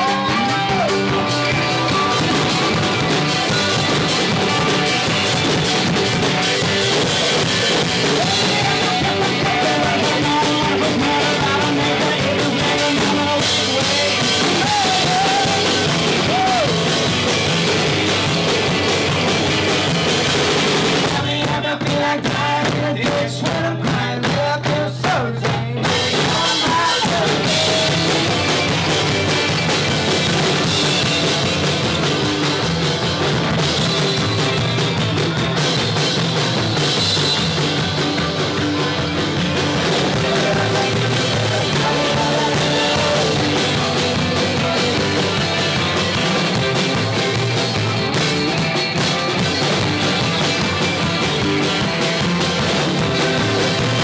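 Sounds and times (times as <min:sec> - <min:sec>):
drums: 0:00.0 - 0:54.0
electric guitars: 0:00.0 - 0:54.0
live rock band playing: 0:00.0 - 0:54.0.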